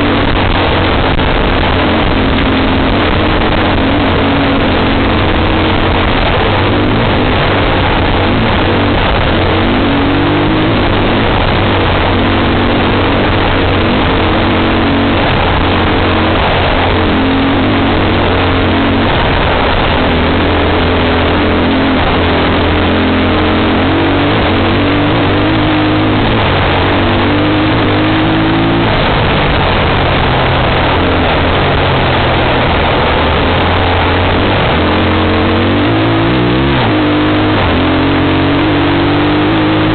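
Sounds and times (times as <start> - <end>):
off-road vehicle engine revving: 0.0 - 39.9
wind and road noise: 0.0 - 39.9.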